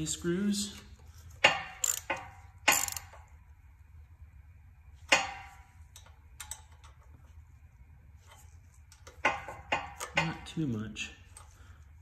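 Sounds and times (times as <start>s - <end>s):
metallic clicks of hand driver on screws: 1.8s - 3.2s.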